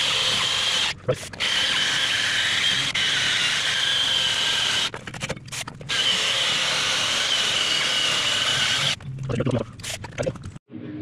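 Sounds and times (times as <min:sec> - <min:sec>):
cordless drill motor whine: 0:05.9 - 0:09.0.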